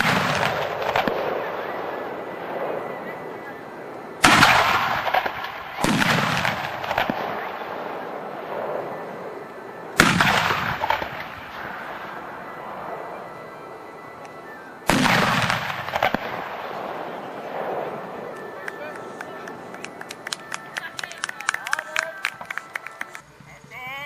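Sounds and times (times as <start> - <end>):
artillery blasts with rolling echo: 0.0 - 20.7.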